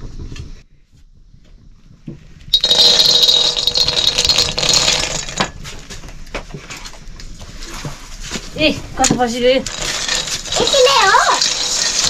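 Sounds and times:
acorns clattering in metal wok: 0:02.6 - 0:05.6, 0:09.6 - 0:12.0.

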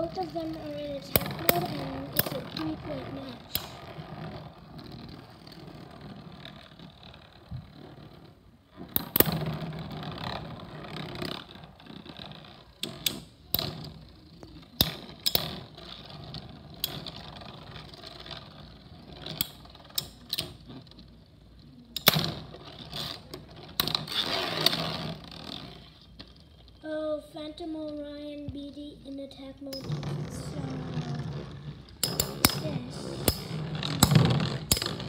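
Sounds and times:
spinning tops clacking together: 0:00.0 - 0:03.8, 0:30.8 - 0:35.0
spinning tops whirring and scraping: 0:00.0 - 0:26.8, 0:29.6 - 0:35.0.

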